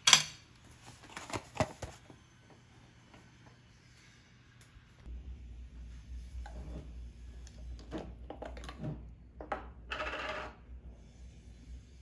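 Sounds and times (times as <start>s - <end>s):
low steady hum: 1.8s - 12.0s.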